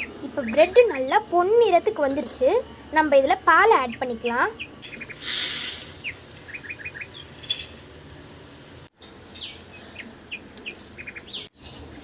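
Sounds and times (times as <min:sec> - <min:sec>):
birds chirping: 0:00.0 - 0:05.2, 0:05.9 - 0:12.0
milk hissing in hot pot: 0:05.2 - 0:06.4.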